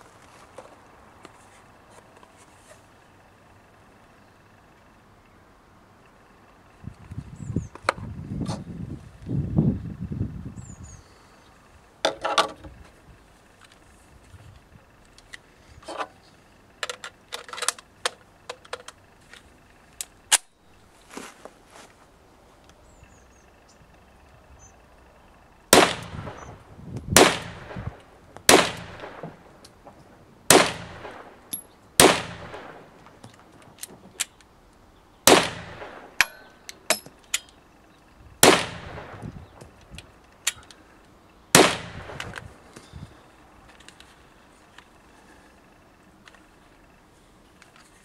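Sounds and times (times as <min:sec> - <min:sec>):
gunshots: 0:25.7 - 0:26.6, 0:27.2 - 0:29.5, 0:30.5 - 0:31.4, 0:32.0 - 0:33.0, 0:35.2 - 0:36.4, 0:38.4 - 0:39.2, 0:41.5 - 0:42.3.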